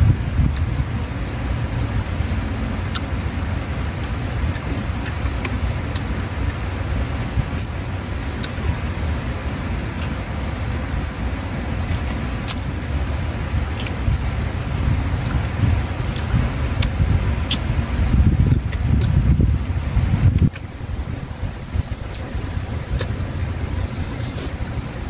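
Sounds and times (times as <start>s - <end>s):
low outdoor rumble: 0.0s - 25.0s
clicks and smacks of eating: 16.1s - 17.7s, 18.4s - 19.2s.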